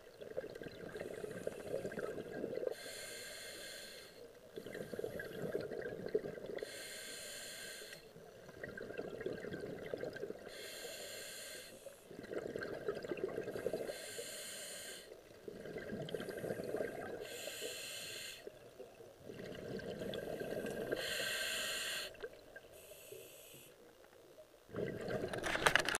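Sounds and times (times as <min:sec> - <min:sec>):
exhaled bubbles rushing: 0:00.2 - 0:02.7, 0:04.6 - 0:06.6, 0:08.4 - 0:10.5, 0:12.1 - 0:13.9, 0:15.4 - 0:17.2, 0:19.2 - 0:21.0, 0:24.7 - 0:25.8
hissing regulator inhale: 0:02.7 - 0:04.2, 0:06.6 - 0:08.2, 0:10.4 - 0:12.1, 0:13.5 - 0:15.2, 0:16.1 - 0:18.6, 0:20.0 - 0:23.8.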